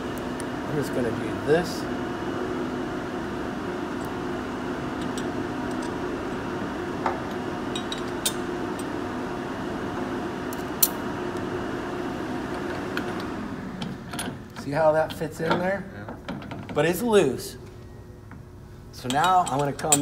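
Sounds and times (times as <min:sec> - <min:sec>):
machine shop hum: 0:00.0 - 0:20.0
hand tools clicking on metal: 0:19.0 - 0:20.0.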